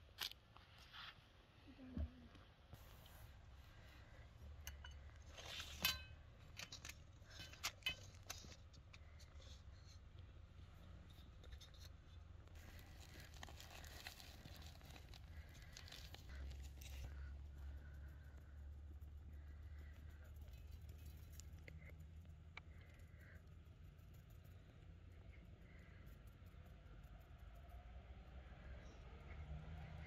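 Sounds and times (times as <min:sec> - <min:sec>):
plastic packet crinkling and tearing: 0:12.6 - 0:17.0.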